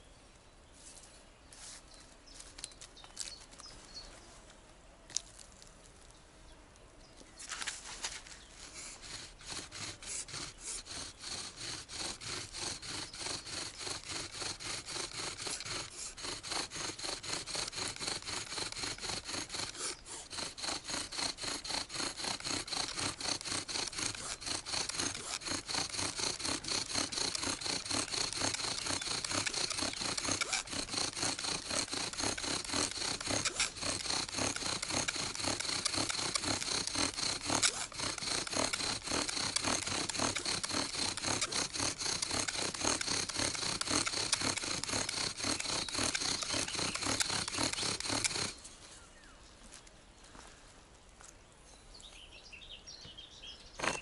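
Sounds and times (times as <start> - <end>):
bow drill rubbing strokes: 7.4 - 49.0.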